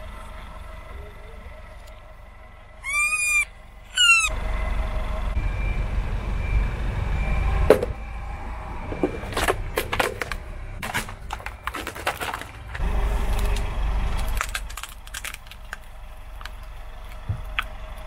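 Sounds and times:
objects cracking under car tyre: 9.0s - 18.0s.

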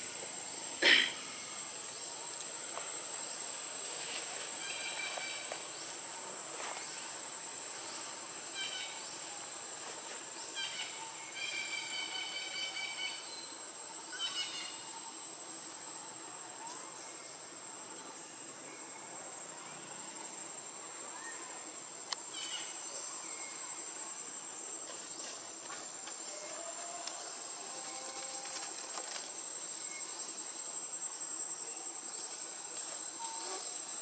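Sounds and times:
high-pitched insect drone: 10.5s - 16.2s.

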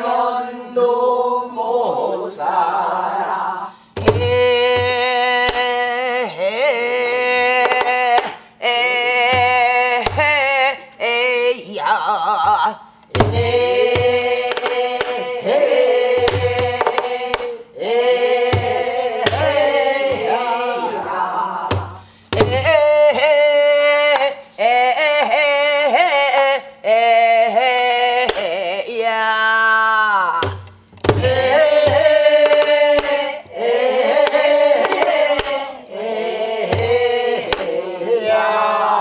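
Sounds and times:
barrel drum strokes: 18.5s - 20.4s.

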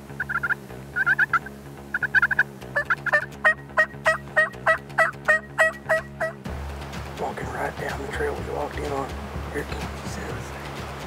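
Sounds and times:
turkey yelping: 0.1s - 6.4s.

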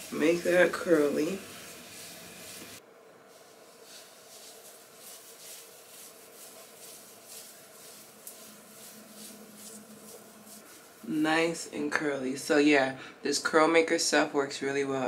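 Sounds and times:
fingers rustling through hair: 0.0s - 12.0s.

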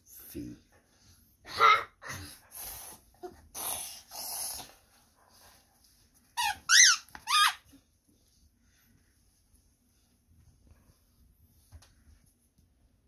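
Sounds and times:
squeaky toy squeaking: 6.4s - 7.7s.

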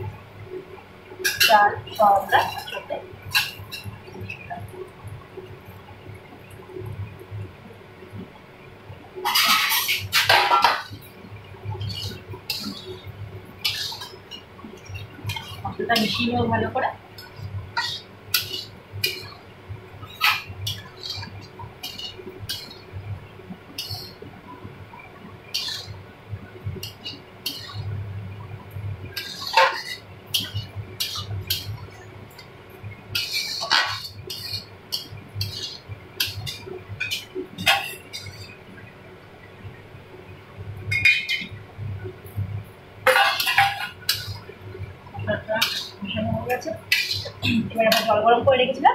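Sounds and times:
food frying in oil: 0.0s - 48.9s
spatula scraping metal pan: 9.3s - 10.9s, 13.6s - 14.4s, 20.1s - 22.8s, 25.5s - 26.0s, 29.2s - 31.7s, 33.2s - 38.4s, 43.1s - 44.4s, 46.9s - 48.2s.

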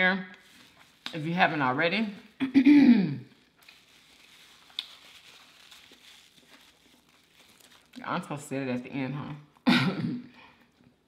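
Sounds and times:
paper napkin crinkling: 0.3s - 2.4s, 3.3s - 8.4s.

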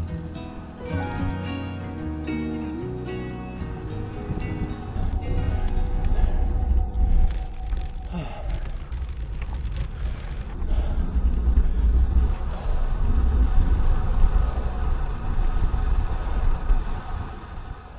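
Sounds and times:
wind buffeting microphone: 3.7s - 17.9s.

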